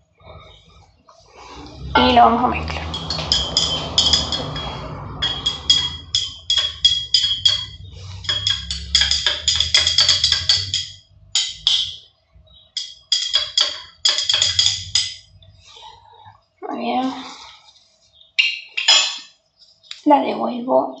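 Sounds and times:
glass rod clinking in glass beaker: 2.8 - 12.0, 12.7 - 15.3, 18.4 - 19.3.

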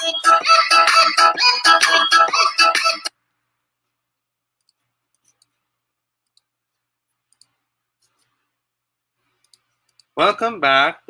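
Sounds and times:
computer mouse clicks: 6.2 - 6.5, 7.2 - 8.4, 9.4 - 10.2.

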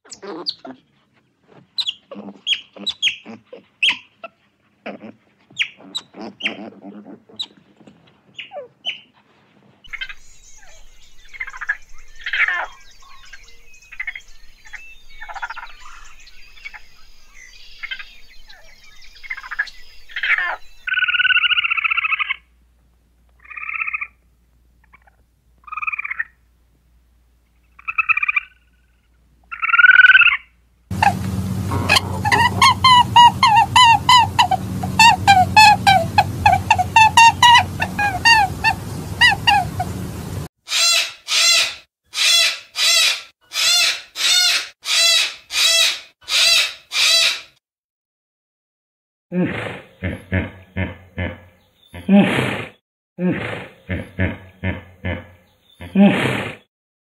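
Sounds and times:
small animals squeaking and chirping: 0.0 - 0.8, 1.8 - 7.6, 8.3 - 9.1, 9.9 - 14.2, 29.5 - 47.5.

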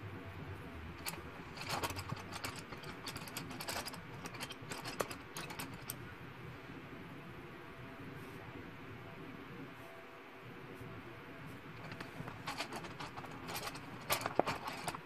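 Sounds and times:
coloured pencils clattering: 1.0 - 6.0, 11.8 - 15.0.

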